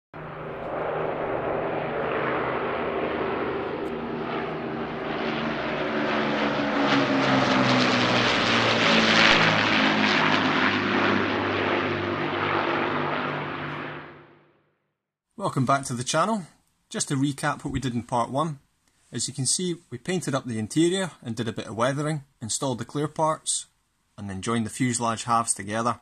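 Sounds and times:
propeller aircraft engines droning: 0.2 - 14.5.

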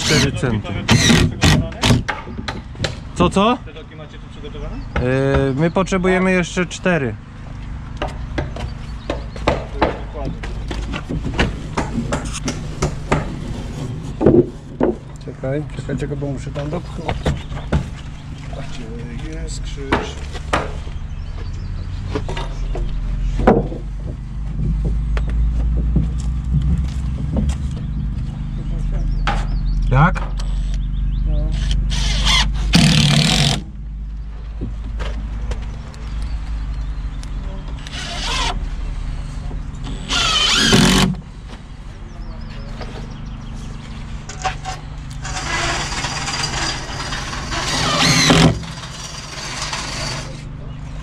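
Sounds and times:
engine running steadily: 0.0 - 51.0
steady low hum: 5.8 - 51.0
wood scraping against wood: 10.8 - 15.0, 44.3 - 50.5
wooden boards knocking: 22.2 - 26.2.

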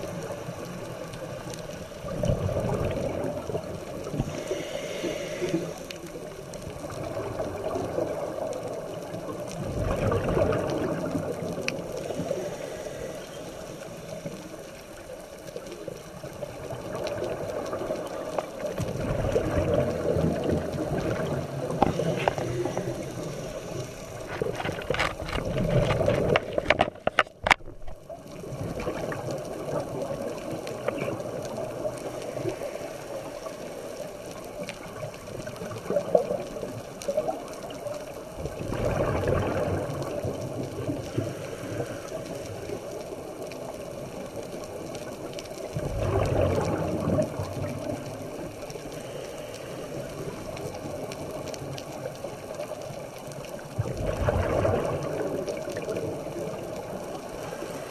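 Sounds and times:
underwater hum: 0.0 - 57.9
rushing bubble bursts: 2.0 - 4.4, 9.6 - 12.4, 16.6 - 23.0, 38.4 - 41.3, 45.8 - 48.0, 53.8 - 57.4.

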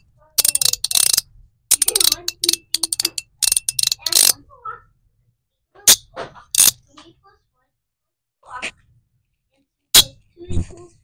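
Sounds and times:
fidget slider clicking: 0.0 - 4.4, 5.9 - 6.8
fidget slider snap: 0.4 - 4.4, 5.9 - 6.8.

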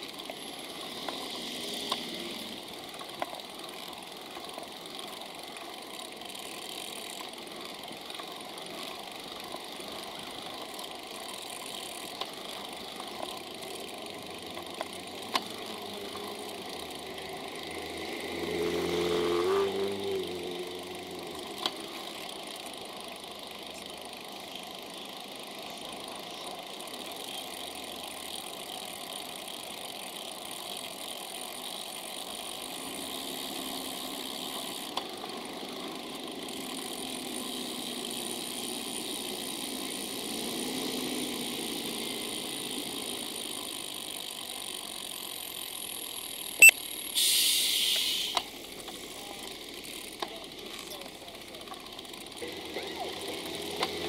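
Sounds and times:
vehicles passing: 0.0 - 47.2, 48.2 - 54.0
road traffic noise: 0.0 - 54.0
burst of hiss: 47.2 - 48.4.

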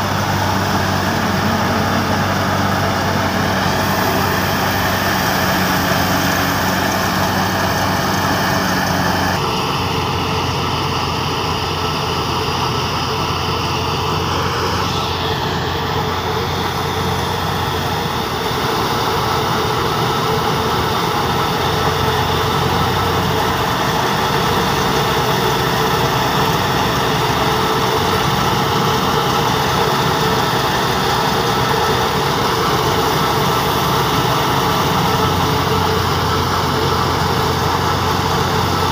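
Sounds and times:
low hum: 0.0 - 38.9
tractor engine and thresher running: 0.0 - 38.9.

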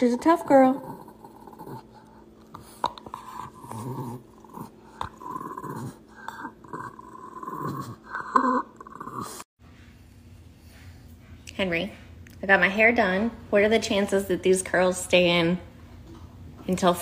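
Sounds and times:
dog growling in play: 0.0 - 9.5.

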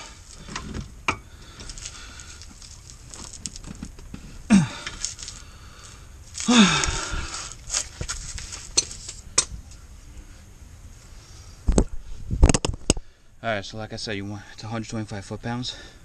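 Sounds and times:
man grunting with effort: 4.5 - 4.9, 6.4 - 7.3.

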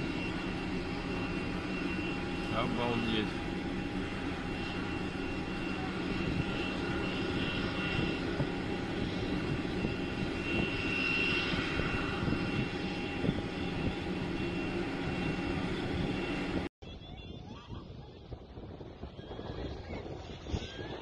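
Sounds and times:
high turbine whine: 0.0 - 16.7
jet engines rumbling: 0.0 - 16.7.

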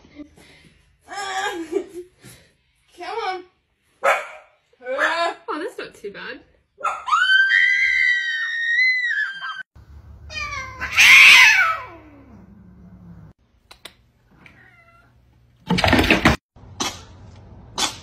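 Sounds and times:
cat yowling: 10.3 - 12.4.

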